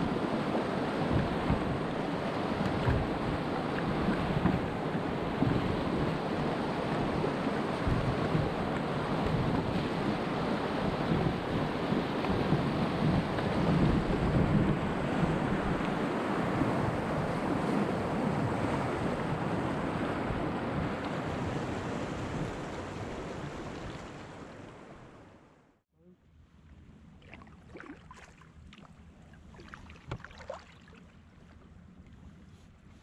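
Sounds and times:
paddle splashes and drips: 0:01.1 - 0:06.2, 0:21.8 - 0:24.9, 0:27.2 - 0:32.3.

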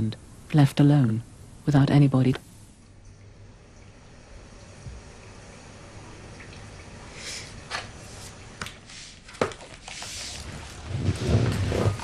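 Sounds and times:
low bumps and shuffling: 0:10.4 - 0:12.0.

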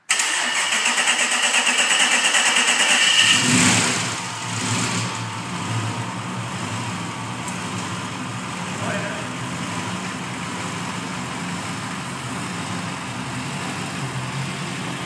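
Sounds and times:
engine starter cranking: 0:00.1 - 0:05.2
car engine idling: 0:00.1 - 0:15.0.

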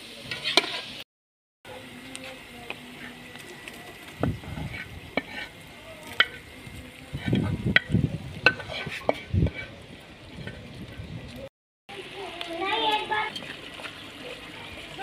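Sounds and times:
low sizzle: 0:00.0 - 0:01.0, 0:01.7 - 0:15.0
metal spoon scraping cookware: 0:00.3 - 0:00.9, 0:07.2 - 0:09.7.

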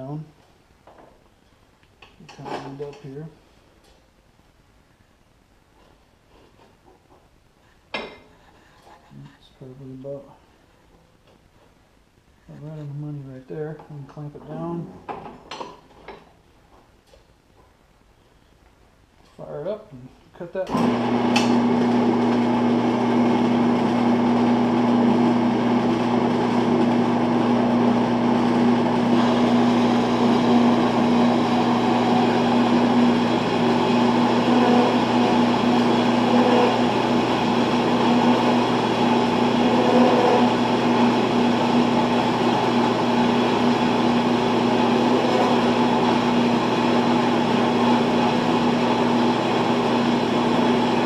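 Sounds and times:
bandsaw cutting metal: 0:28.8 - 0:51.0.

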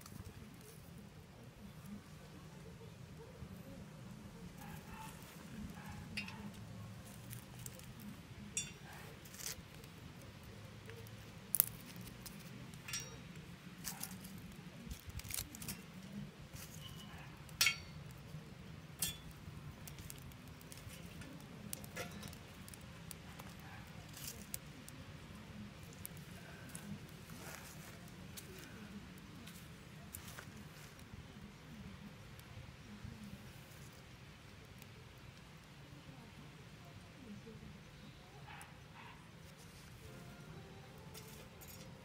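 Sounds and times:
fire crackling: 0:00.0 - 0:42.0
wood clinking against metal stove: 0:04.8 - 0:25.0.

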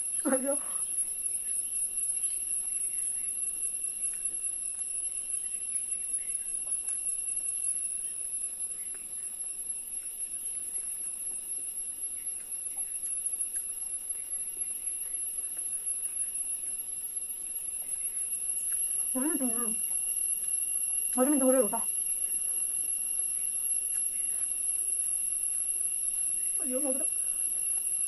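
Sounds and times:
insects droning: 0:00.0 - 0:28.0.

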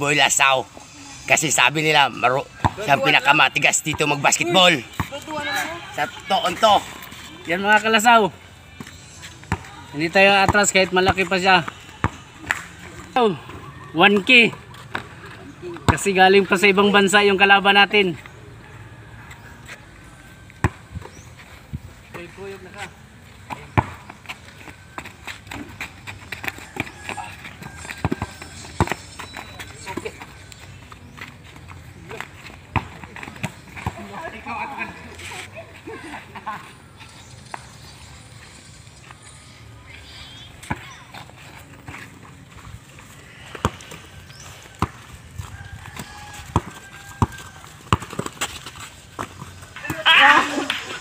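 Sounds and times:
basketball bouncing on dirt: 0:02.5 - 0:05.6, 0:08.7 - 0:12.8, 0:13.4 - 0:16.6, 0:20.5 - 0:22.3, 0:23.3 - 0:34.3, 0:40.6 - 0:51.0
basketball bouncing: 0:23.5 - 0:24.2, 0:26.4 - 0:29.2, 0:32.6 - 0:34.1, 0:44.7 - 0:45.1, 0:45.9 - 0:50.0.

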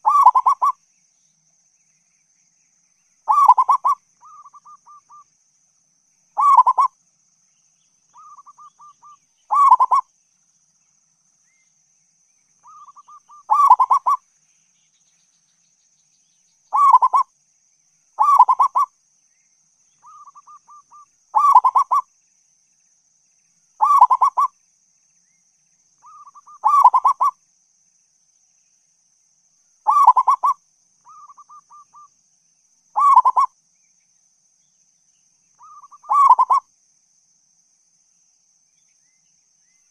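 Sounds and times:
dove cooing: 0:00.0 - 0:00.8, 0:03.3 - 0:05.2, 0:06.4 - 0:06.9, 0:08.2 - 0:10.0, 0:12.7 - 0:14.2, 0:16.7 - 0:17.3, 0:18.2 - 0:18.9, 0:20.0 - 0:22.0, 0:23.8 - 0:24.5, 0:26.1 - 0:27.3, 0:29.9 - 0:32.1, 0:33.0 - 0:33.5, 0:35.6 - 0:36.6.

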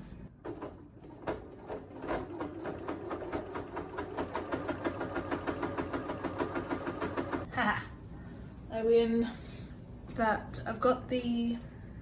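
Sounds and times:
sewing machine stitching: 0:00.5 - 0:07.5.

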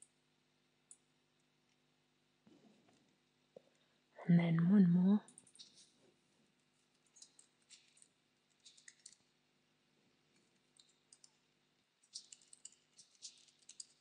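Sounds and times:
typing on computer keyboard: 0:07.1 - 0:09.2, 0:10.8 - 0:11.4, 0:12.0 - 0:14.0.

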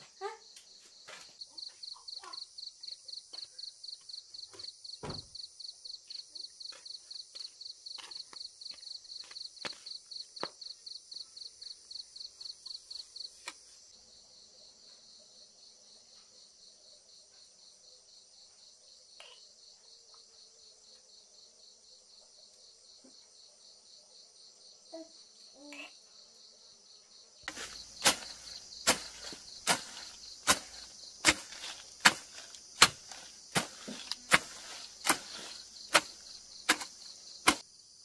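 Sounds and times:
insects chirring: 0:00.0 - 0:38.0
hand tool chopping grass: 0:27.5 - 0:37.6.

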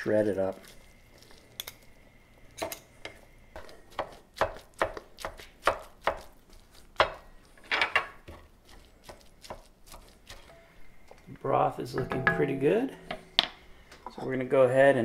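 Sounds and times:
knife chopping on wooden board: 0:03.6 - 0:07.3, 0:08.2 - 0:10.4.

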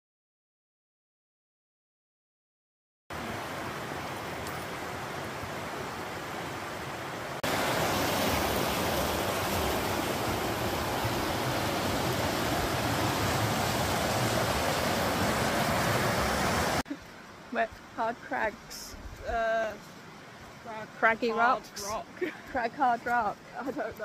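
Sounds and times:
river water rushing over rocks: 0:03.2 - 0:17.9.

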